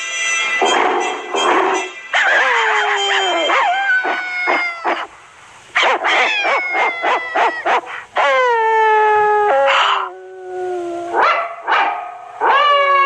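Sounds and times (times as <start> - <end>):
cartoon dog barking: 0.7 - 5.1, 5.8 - 8.5
cartoon dog howling: 2.2 - 5.1, 5.9 - 11.2, 12.5 - 13.0.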